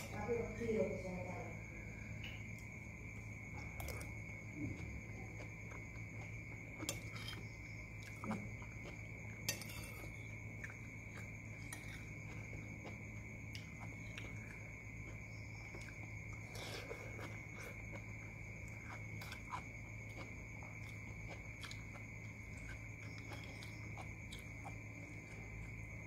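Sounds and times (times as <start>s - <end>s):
soft chewing: 1.7s - 26.0s
spoon scraping ceramic bowl: 9.5s - 10.2s.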